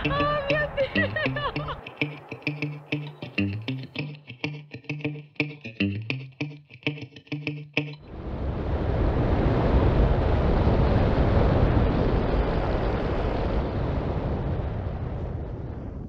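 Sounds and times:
wind rushing over microphone: 8.0s - 16.0s.

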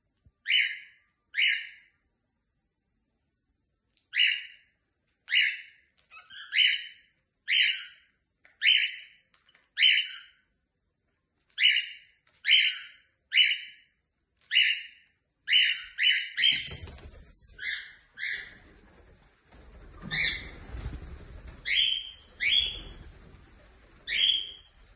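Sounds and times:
cockatiel chirping calls: 0.4s - 1.9s, 4.1s - 4.6s, 5.3s - 9.2s, 9.8s - 10.4s, 11.6s - 13.8s, 14.5s - 16.7s, 17.5s - 18.6s, 21.6s - 22.9s, 24.0s - 24.7s.

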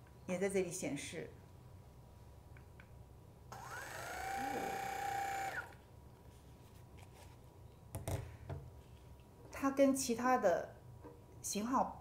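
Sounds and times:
massage gun motor whine: 3.5s - 5.8s.

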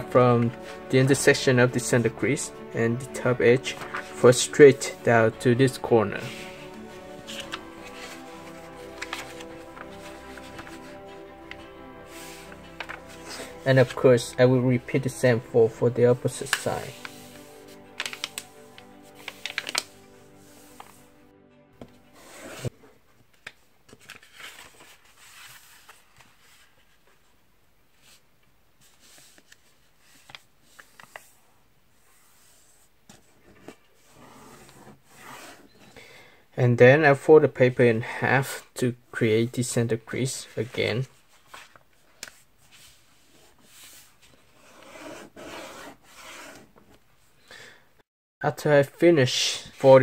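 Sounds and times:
paper rustling and crinkling: 3.2s - 14.3s, 15.0s - 21.0s, 21.8s - 27.3s, 28.8s - 31.4s, 40.5s - 47.0s
paper crackle: 6.2s - 13.9s, 16.2s - 21.0s, 23.3s - 26.7s.

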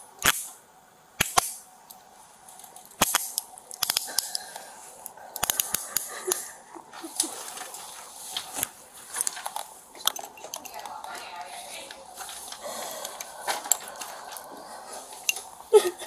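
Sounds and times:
handcuff ratchet clicks: 2.8s - 6.5s, 9.4s - 10.9s.

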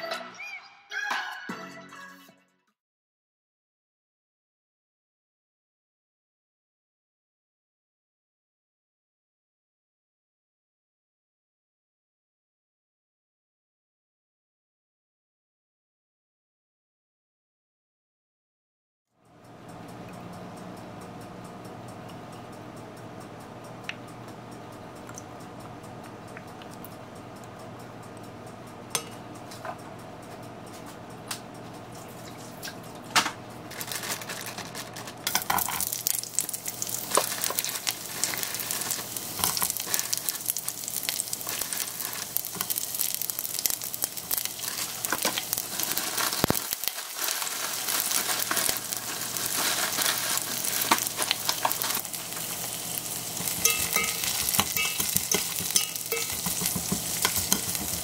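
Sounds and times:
onion sizzling in hot oil: 33.7s - 58.0s.

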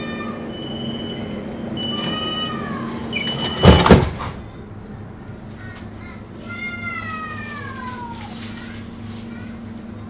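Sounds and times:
sliding doors banging shut: 3.1s - 4.5s.

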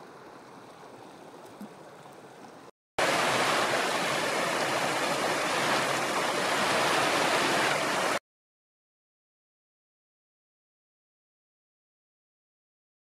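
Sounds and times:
creek water rushing over stones: 3.0s - 8.2s.

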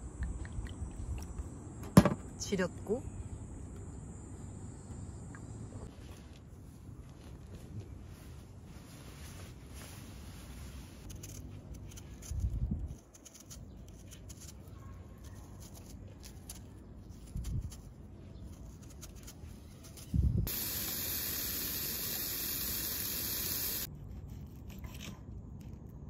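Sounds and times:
knife scraping peeling fruit: 11.0s - 20.2s.

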